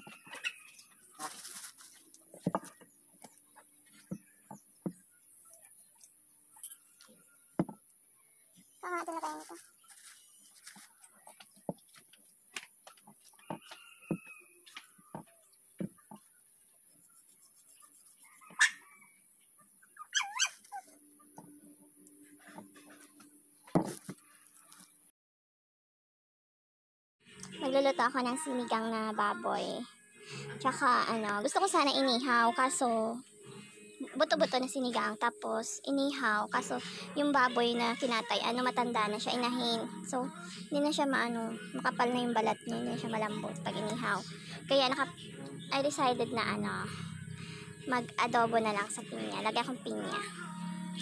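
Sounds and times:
animal yelping: 18.3s - 18.9s, 19.9s - 21.0s.

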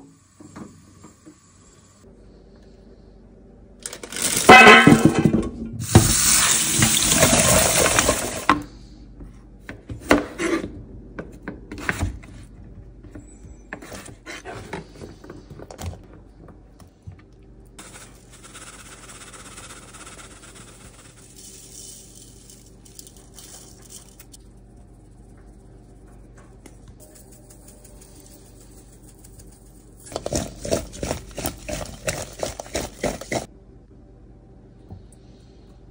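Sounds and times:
water from tap running into pot: 6.0s - 8.4s
potato wedges knocking and clattering: 30.0s - 33.4s.

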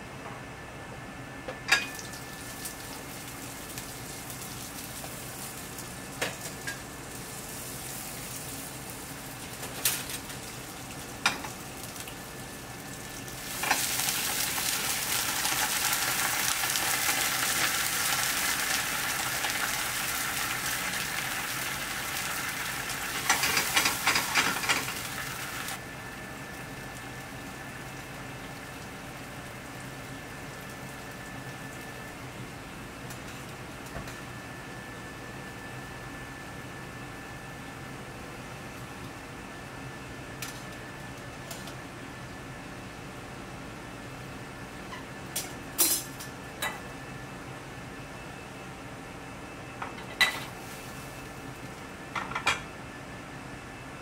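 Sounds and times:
peas sizzling in oil: 1.9s - 25.9s.

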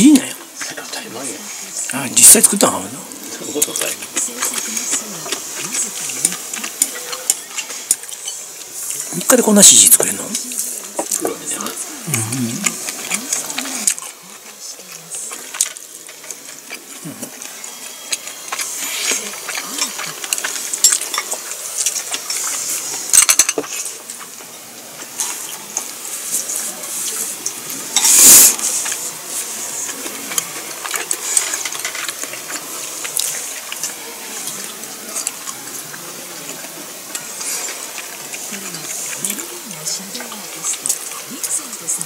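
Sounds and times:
chewing mouth noises: 2.5s - 9.1s, 10.0s - 42.0s
chopsticks and tableware clinking: 15.4s - 29.7s.

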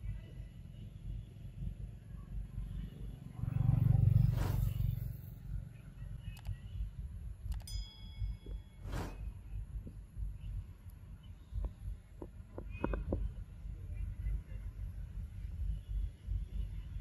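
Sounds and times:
low rumble: 1.6s - 6.0s
short whoosh: 3.5s - 5.2s, 8.8s - 9.4s
sharp clicks: 6.3s - 6.6s, 7.5s - 7.8s.

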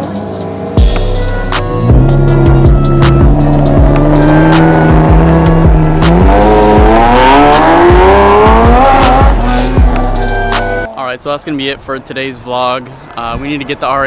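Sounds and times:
background music with beat: 0.0s - 10.9s
sports car engine accelerating: 1.6s - 11.0s.

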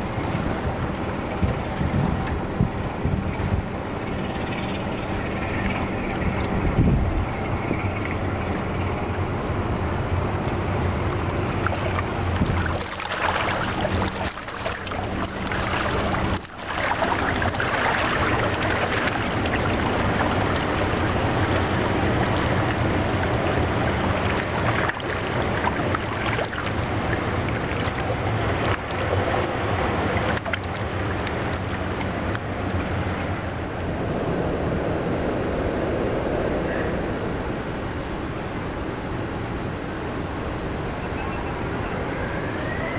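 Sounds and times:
ship diesel engine humming: 0.0s - 42.9s
water rushing along hull: 0.0s - 42.9s.

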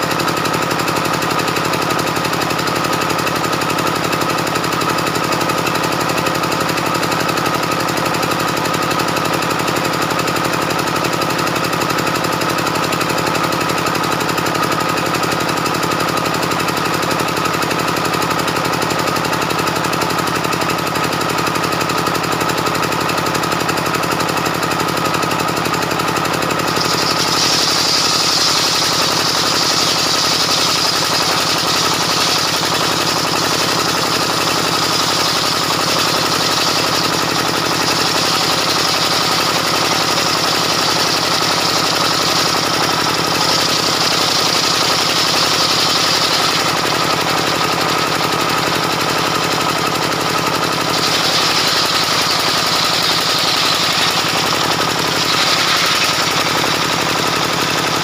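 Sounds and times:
high cutting whine: 26.6s - 48.8s, 50.8s - 58.0s
circular saw ripping a log: 50.9s - 58.0s.

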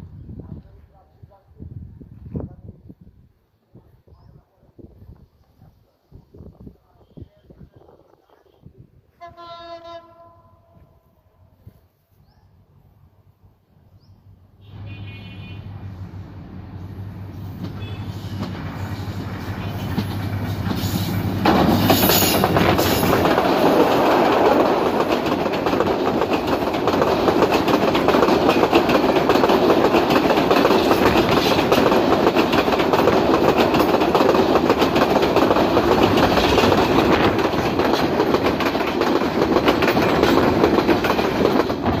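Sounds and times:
diesel locomotive engine hum: 12.6s - 42.0s
train passing rush: 12.6s - 42.0s
wheels clattering on rails: 17.4s - 42.0s.

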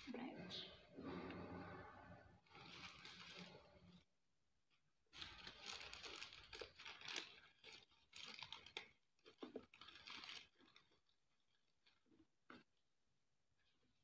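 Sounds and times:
paper crinkling and rustling: 2.4s - 4.1s, 5.1s - 12.3s.

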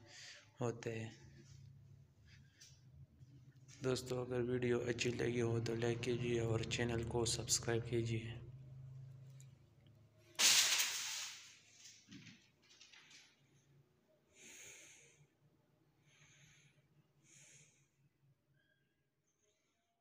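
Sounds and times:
person breathing: 0.0s - 0.6s, 1.2s - 3.0s, 14.3s - 15.4s, 16.0s - 18.2s
faint low hum: 0.0s - 10.4s.

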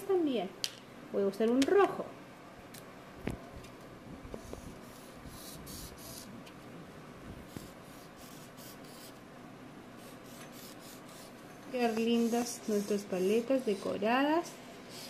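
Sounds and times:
marker scratching on foam: 4.4s - 6.3s, 7.5s - 9.2s, 10.0s - 15.0s.

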